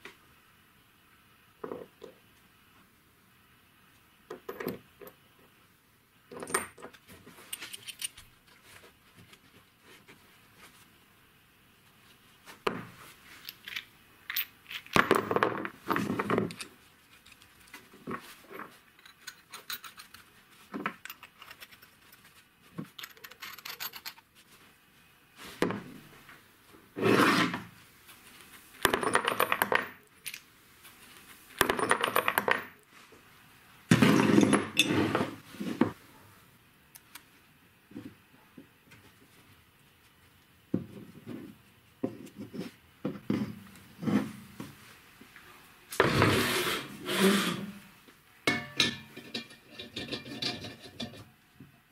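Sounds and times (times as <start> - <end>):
metal scraping on wood: 33.9 - 35.4.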